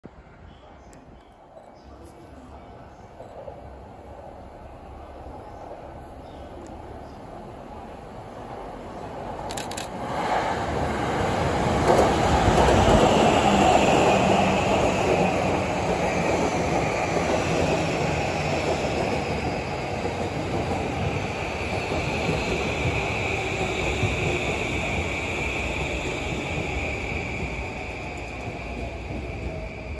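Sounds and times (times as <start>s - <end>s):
train wheel and rail rumble: 0.1s - 29.9s
electric train whine: 6.1s - 29.9s.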